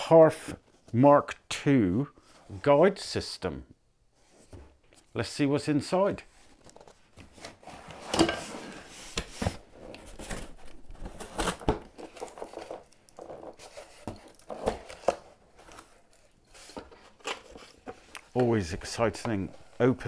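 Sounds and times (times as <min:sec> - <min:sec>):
cardboard rustling and scraping: 0:06.2 - 0:20.0
cardboard tearing: 0:09.5 - 0:16.3.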